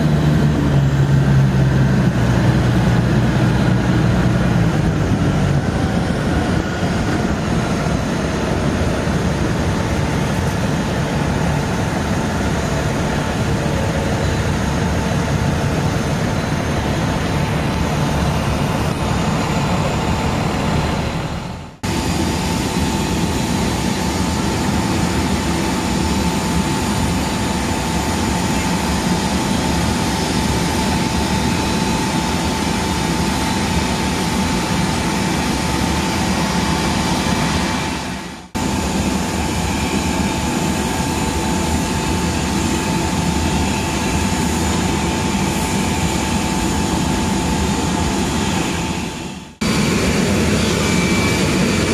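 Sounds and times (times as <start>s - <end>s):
road noise: 0.0s - 22.5s
steady high whine: 0.0s - 51.9s
tow tractor engine running: 0.0s - 51.9s.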